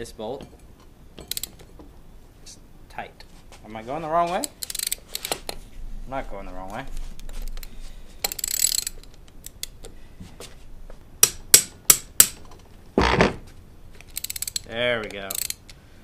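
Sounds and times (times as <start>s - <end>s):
ratchet clicking: 1.2s - 1.7s, 4.4s - 5.6s, 7.4s - 9.9s, 11.2s - 12.4s, 14.0s - 15.8s.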